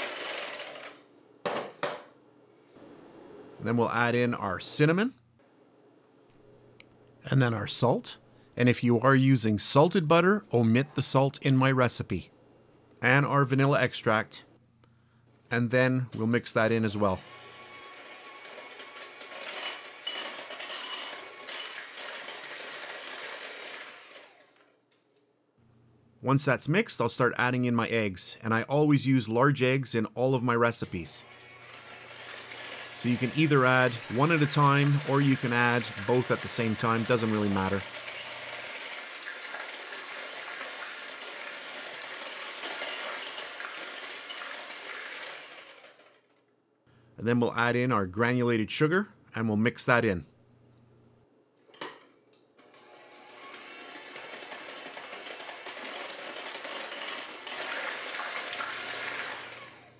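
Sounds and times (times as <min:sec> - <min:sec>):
electric hand mixer running: 0:00.0 - 0:01.0, 0:17.1 - 0:24.7, 0:31.2 - 0:46.3, 0:52.6 - 0:59.9.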